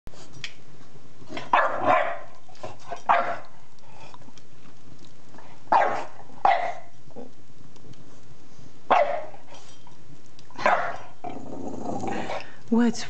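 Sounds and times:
puppy barking: 1.5 - 2.3, 3.0 - 3.5, 5.7 - 6.9, 8.9 - 9.4, 10.6 - 11.1.

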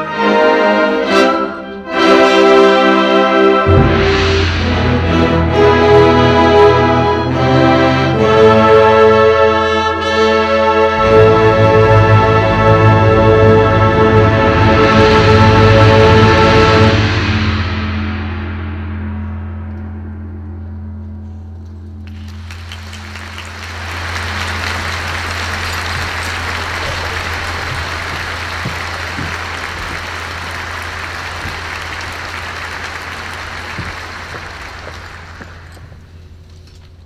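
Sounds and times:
low hum: 11.7 - 37.0
audience applause: 22.1 - 36.1.

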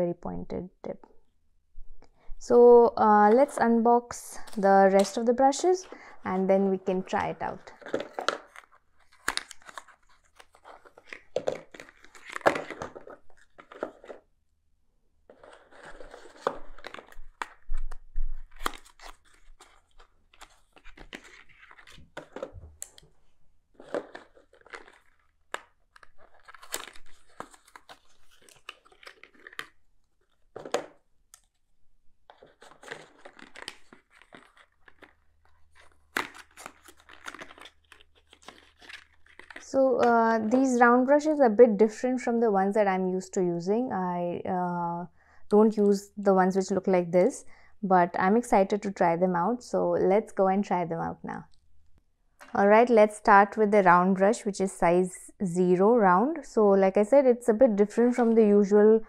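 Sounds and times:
cardboard rustling and scraping: 7.7 - 14.3, 15.3 - 23.1, 23.7 - 25.3, 32.3 - 39.6.

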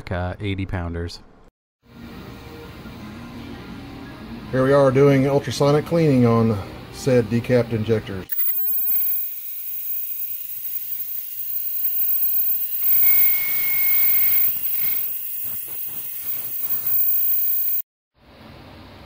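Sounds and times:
high whine: 8.3 - 17.8
ultrasonic cleaner hiss: 8.9 - 17.8.

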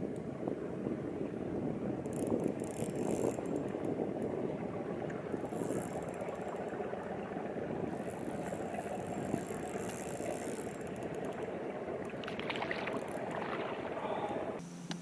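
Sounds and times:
water lapping against boat hull: 0.0 - 14.6
low steady hum: 0.0 - 15.0
fishing reel clicks: 2.0 - 3.8, 5.4 - 6.6, 8.0 - 13.3.

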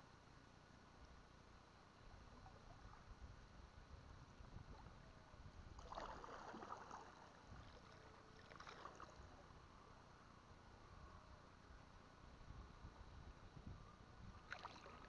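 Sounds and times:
water sloshing: 5.8 - 9.3.

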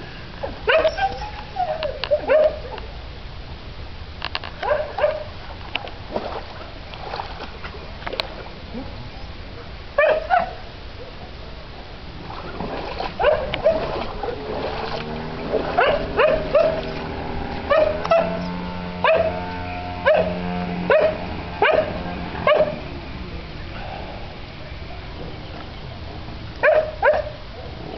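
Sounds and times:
dog barking: 0.7 - 2.6, 4.6 - 5.3, 10.0 - 10.6, 13.2 - 14.4, 15.8 - 16.8, 17.7 - 18.4, 19.0 - 19.4, 20.0 - 22.8, 26.6 - 27.7.

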